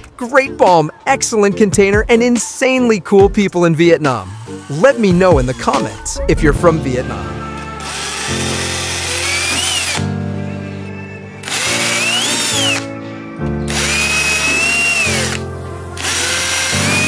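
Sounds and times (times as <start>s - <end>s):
background music: 0.0s - 17.0s
cordless drill drilling metal: 4.2s - 6.0s, 7.8s - 10.1s, 11.4s - 12.9s, 13.7s - 15.4s, 16.0s - 17.0s.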